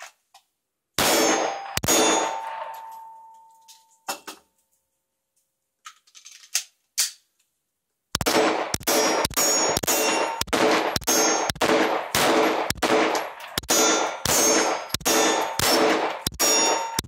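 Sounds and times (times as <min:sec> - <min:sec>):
handgun shots: 0:01.0 - 0:03.0, 0:08.2 - 0:17.0
steel targets ringing: 0:01.0 - 0:03.9, 0:08.8 - 0:17.0.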